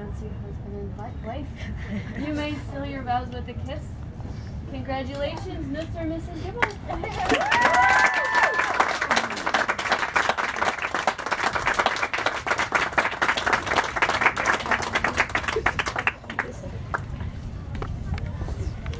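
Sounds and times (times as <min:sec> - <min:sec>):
audience applauding: 0:06.6 - 0:17.1
short cheer: 0:07.1 - 0:09.6.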